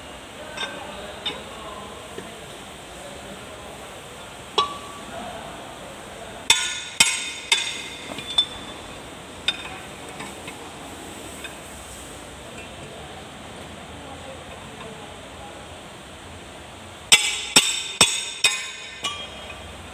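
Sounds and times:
spanner clanking on metal: 6.5s - 8.8s, 17.1s - 19.7s.

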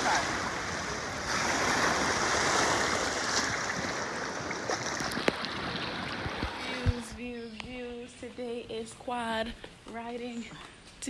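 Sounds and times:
sea surf sloshing: 0.0s - 7.3s.

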